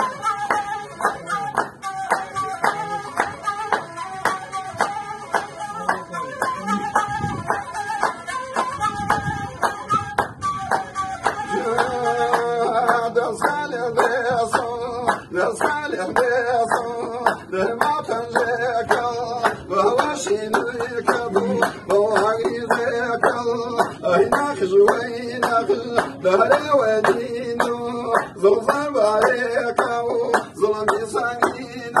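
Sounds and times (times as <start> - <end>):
group hand clapping: 0.0 - 32.0
man singing: 11.3 - 32.0.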